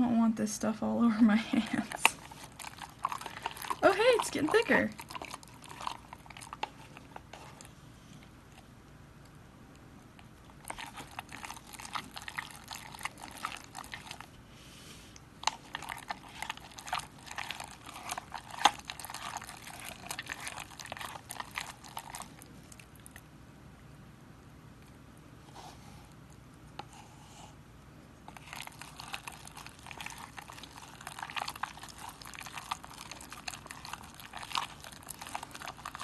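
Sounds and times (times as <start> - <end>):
slime squelching and clicking: 1.8 - 7.7, 9.8 - 14.3, 15.4 - 23.3, 28.2 - 36.0.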